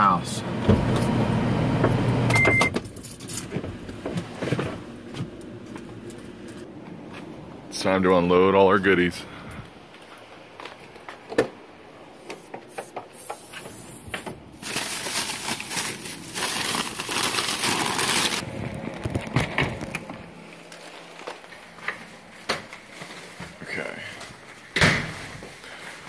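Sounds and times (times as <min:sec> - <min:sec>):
plastic bags rustling: 0:14.5 - 0:26.0.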